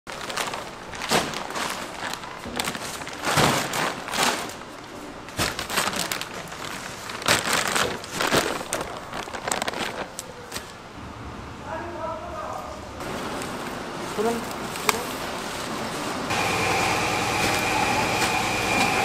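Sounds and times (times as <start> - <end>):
plastic bags crinkling: 0.1 - 10.8.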